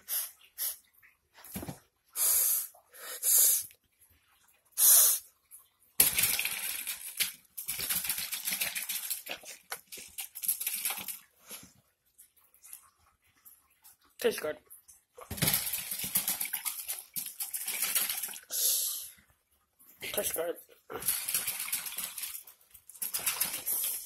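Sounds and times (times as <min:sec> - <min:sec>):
hissing sniffing bursts: 0:00.0 - 0:00.8, 0:02.2 - 0:03.7, 0:04.8 - 0:05.3, 0:18.5 - 0:19.1.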